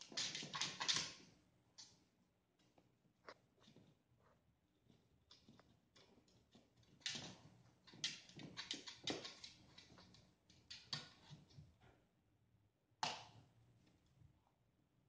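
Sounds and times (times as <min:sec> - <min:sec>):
cat paws tapping on wood: 0:05.3 - 0:11.6.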